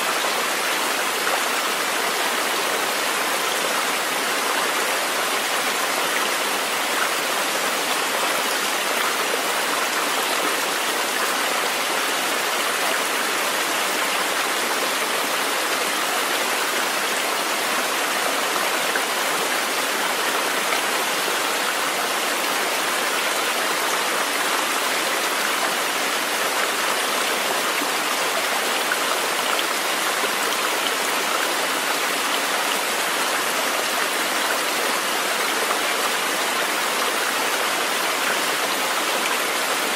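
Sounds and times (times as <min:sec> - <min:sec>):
flowing water rushing: 0:00.0 - 0:39.9.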